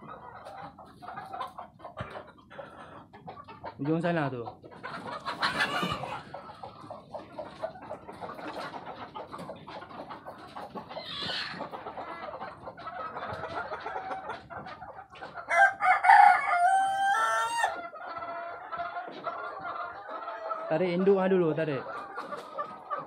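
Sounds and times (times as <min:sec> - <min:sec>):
chickens clucking: 0:00.0 - 0:23.0
rooster crowing: 0:15.5 - 0:17.8.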